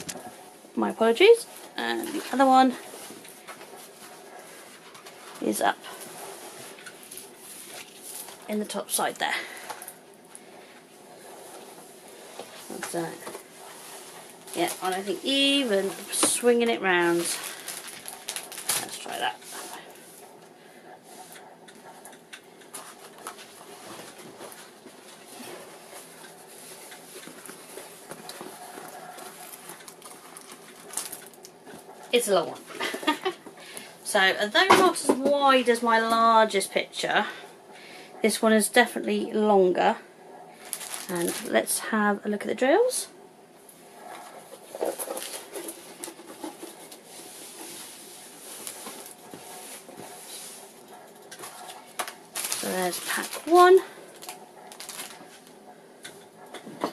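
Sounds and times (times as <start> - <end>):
plastic film rustling: 1.2 - 10.0, 11.2 - 20.5, 22.6 - 36.3, 40.6 - 41.8, 44.2 - 55.6.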